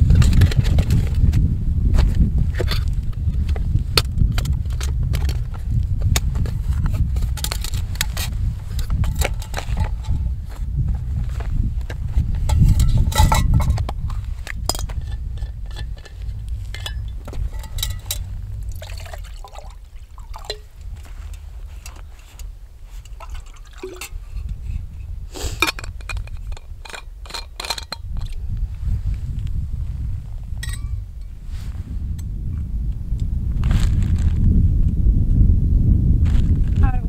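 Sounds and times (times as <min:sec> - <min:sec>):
wind rumble on microphone: 0:00.0 - 0:37.0
pot and lid clinking: 0:12.5 - 0:13.8, 0:14.7 - 0:20.7, 0:23.0 - 0:24.4, 0:30.6 - 0:31.0
water pouring into metal pot: 0:17.5 - 0:20.7, 0:23.2 - 0:24.2.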